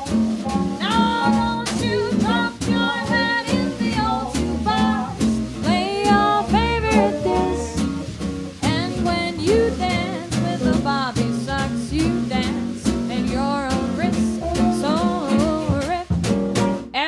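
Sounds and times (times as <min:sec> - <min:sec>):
lead melody line: 0:00.0 - 0:11.6
acoustic guitar: 0:00.0 - 0:17.0
double bass: 0:00.0 - 0:17.0
drums swing beat: 0:00.0 - 0:17.0.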